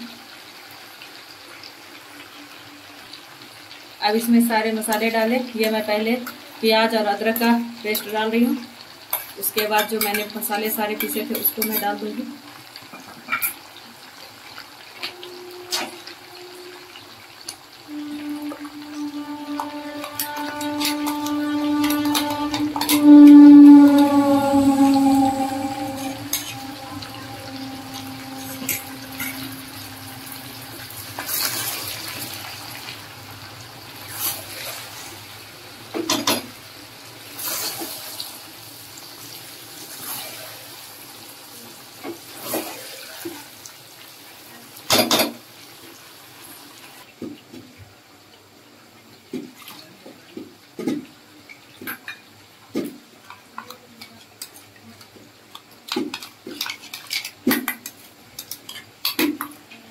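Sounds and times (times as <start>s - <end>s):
food sizzling in pan: 0.0s - 49.3s.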